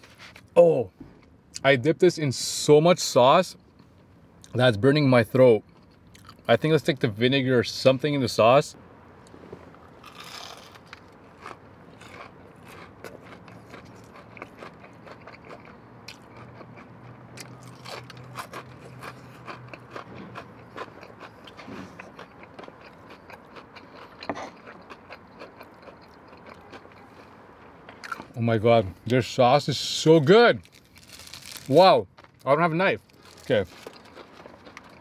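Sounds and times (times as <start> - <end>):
crunchy chewing: 9.7 - 28.4, 30.6 - 32.4, 33.0 - 35.0.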